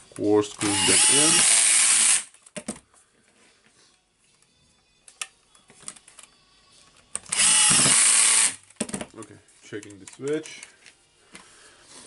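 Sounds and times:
drill driving screws: 0.6 - 2.3, 7.2 - 8.6.

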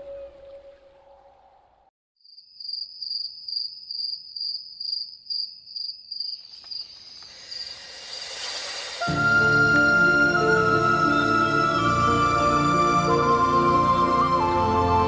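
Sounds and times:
cricket chirping: 2.2 - 8.5
rising whoosh of noise: 7.3 - 10.2.

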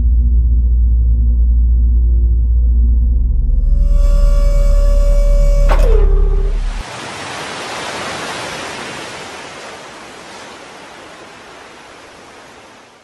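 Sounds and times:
deep rumble: 0.0 - 6.8.

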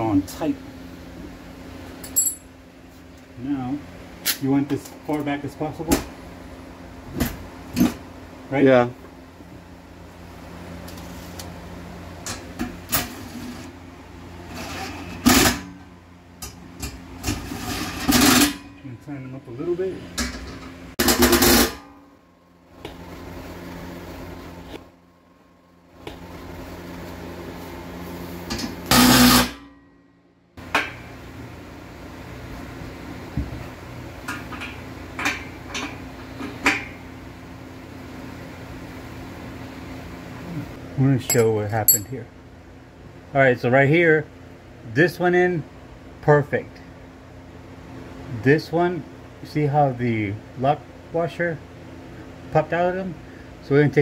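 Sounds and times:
steady low hum: 0.0 - 54.0
metal clinks of tools: 2.0 - 2.5, 41.3 - 42.2.

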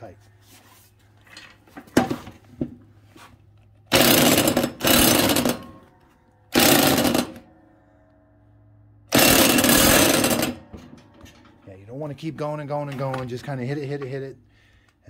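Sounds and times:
impact wrench hammering: 3.9 - 7.6, 9.1 - 12.2.

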